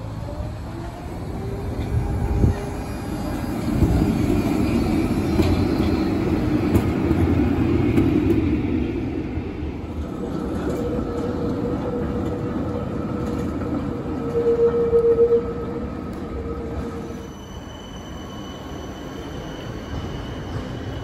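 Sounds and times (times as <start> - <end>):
tram wheels rumbling on rails: 0.0 - 21.0.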